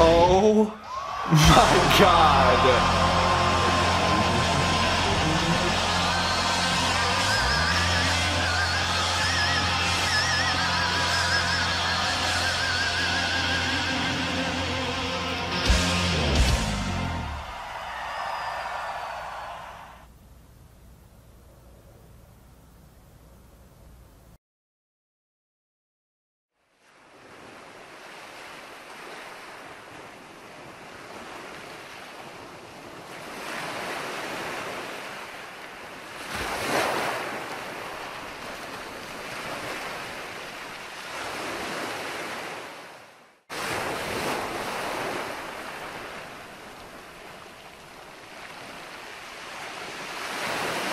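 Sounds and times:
rushing noise: 0:00.9 - 0:11.3.

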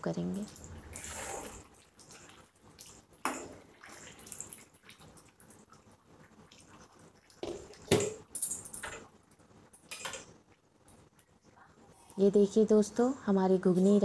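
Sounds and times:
spatula stirring wet curry: 0:00.2 - 0:07.9.

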